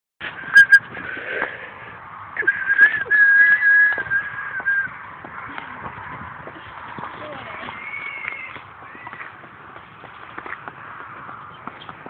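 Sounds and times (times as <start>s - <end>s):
person whistling: 0.5s - 0.8s, 2.4s - 4.9s.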